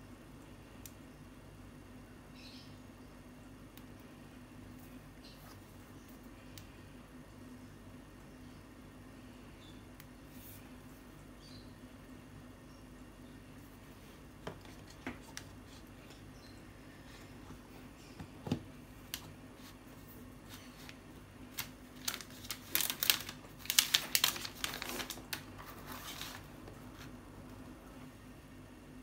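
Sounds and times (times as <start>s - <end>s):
plastic film crinkling: 19.0s - 27.2s.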